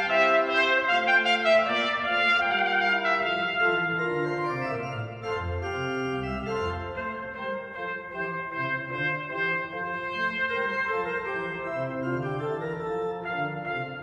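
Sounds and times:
trumpet melody: 0.0s - 14.0s
pipe organ chords: 3.2s - 14.0s.

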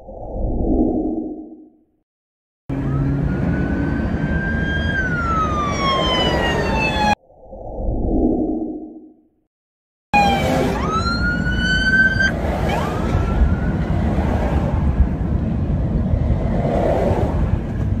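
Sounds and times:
police siren sweeping up: 2.7s - 7.2s, 10.2s - 13.9s.

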